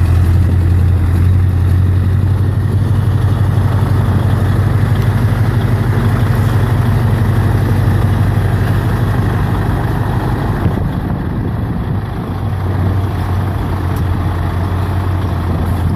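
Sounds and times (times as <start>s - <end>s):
diesel truck engine idling: 0.0s - 15.9s.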